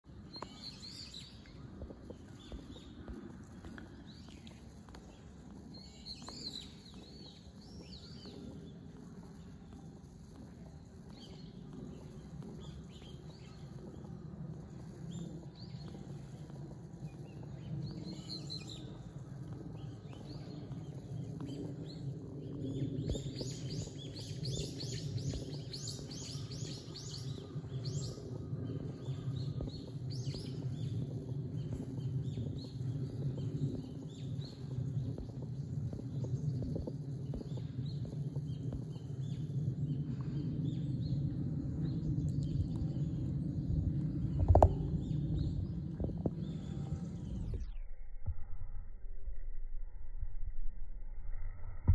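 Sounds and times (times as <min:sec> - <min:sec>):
steady low rumble: 0:00.0 - 0:51.9
birds chirping: 0:00.1 - 0:47.7.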